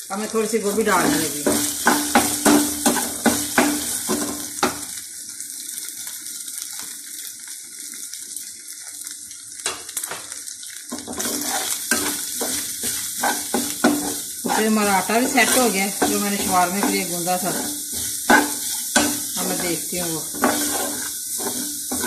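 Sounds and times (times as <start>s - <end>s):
meat sizzling in a frying pan: 0.0s - 22.0s
metal spoon scraping a pan: 0.7s - 4.7s, 11.1s - 22.0s.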